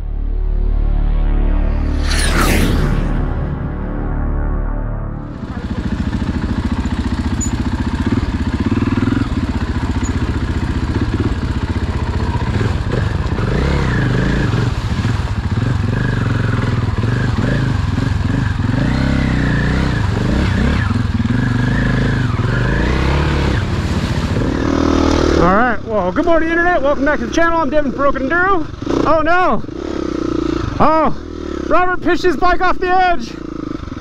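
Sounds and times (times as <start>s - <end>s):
dirt bike engine revving: 5.2s - 32.5s, 33.2s - 34.0s.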